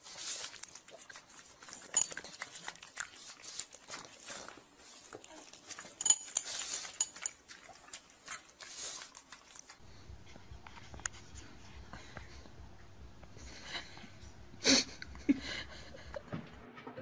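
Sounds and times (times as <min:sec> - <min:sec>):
low steady hum: 0:00.1 - 0:17.0.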